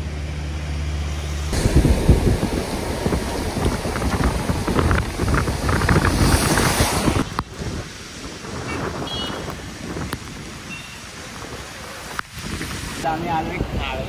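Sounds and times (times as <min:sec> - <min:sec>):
car running noise: 0:00.0 - 0:07.8
wind buffeting microphone: 0:01.5 - 0:14.0.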